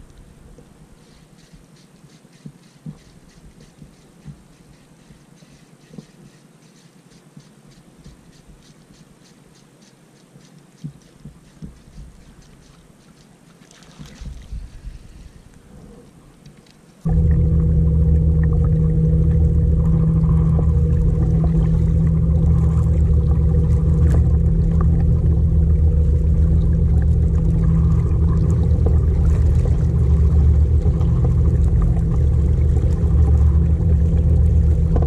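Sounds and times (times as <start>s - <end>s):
fishing reel ticking: 1.0s - 13.3s
water knocking against kayak hull: 17.1s - 35.0s.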